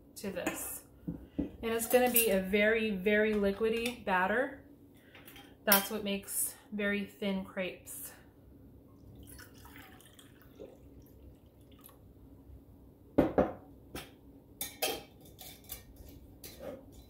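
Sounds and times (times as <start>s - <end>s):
milk pouring into metal cup: 9.1s - 12.0s.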